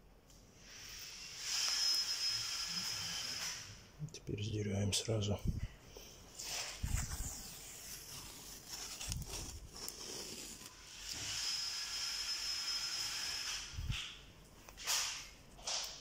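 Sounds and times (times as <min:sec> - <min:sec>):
tape peeling off floor: 0:06.4 - 0:12.3, 0:13.3 - 0:16.0.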